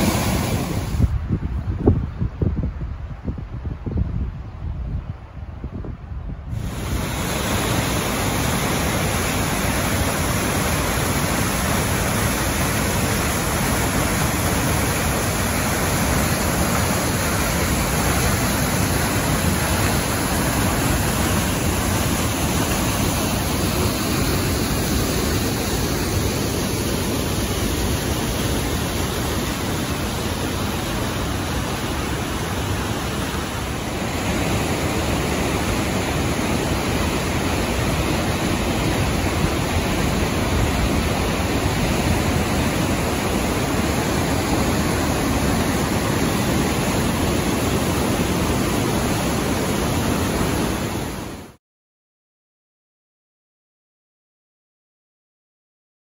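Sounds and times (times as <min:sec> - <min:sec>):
water rushing through rock gorge: 0:00.0 - 0:01.0, 0:06.5 - 0:51.6.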